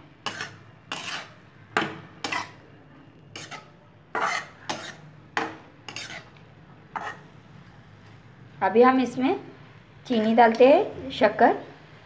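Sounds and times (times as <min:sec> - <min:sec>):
spatula scraping in metal pan: 0:00.2 - 0:01.5, 0:02.1 - 0:02.6, 0:03.3 - 0:05.1, 0:05.8 - 0:07.4.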